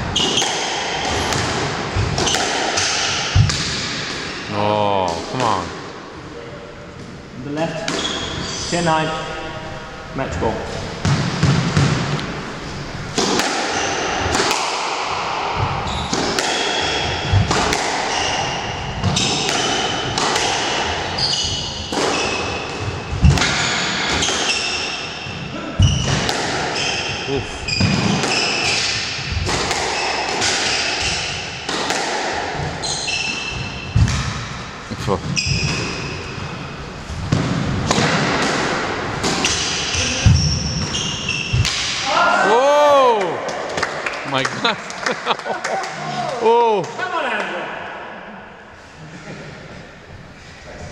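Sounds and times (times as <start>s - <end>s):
squash ball hitting rackets and walls: 0.0s - 5.8s, 7.7s - 8.4s, 10.8s - 42.3s
squash ball cracking off rackets: 13.1s - 24.7s
shoes squeaking on wooden floor: 26.8s - 28.8s, 40.0s - 41.7s.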